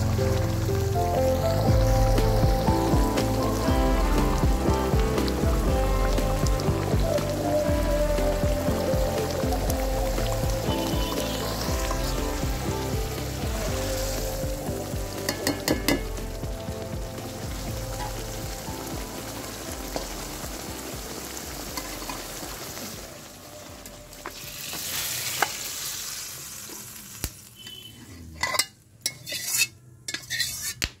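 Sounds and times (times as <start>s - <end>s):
food sizzling in oil: 0.0s - 30.8s
spatula scraping metal pan: 27.6s - 30.9s.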